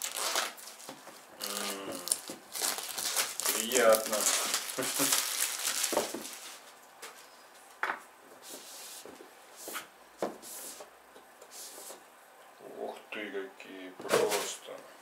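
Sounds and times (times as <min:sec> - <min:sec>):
soft plastic crinkle: 0:00.0 - 0:07.7.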